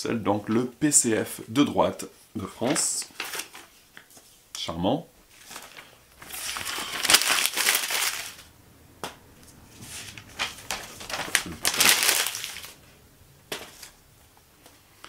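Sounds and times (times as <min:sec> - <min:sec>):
paper leaflets rustling: 0:02.5 - 0:04.4, 0:05.3 - 0:08.5, 0:09.4 - 0:14.0.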